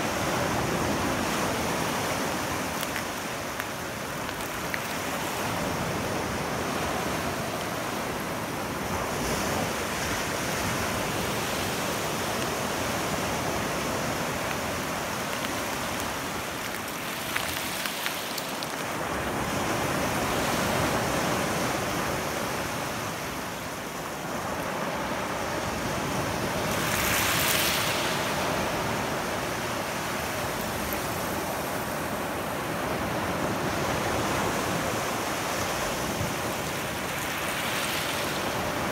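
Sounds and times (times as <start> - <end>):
small surf washing on shore: 0.0 - 38.9.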